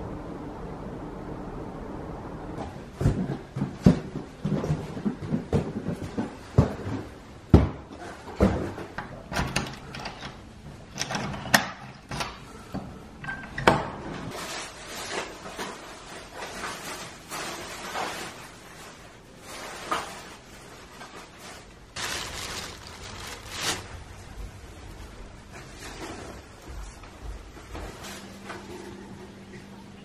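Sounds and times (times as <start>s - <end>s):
wooden doors opening and shutting: 9.0s - 14.3s
footsteps on wooden floor: 26.5s - 28.7s.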